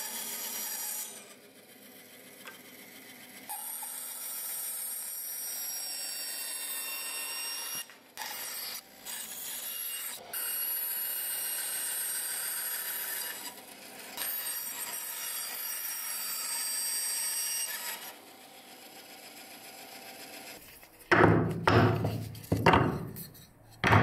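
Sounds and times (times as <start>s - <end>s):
bandsaw cutting wood: 0.0s - 23.3s
wooden knocks and scrapes: 21.1s - 24.0s.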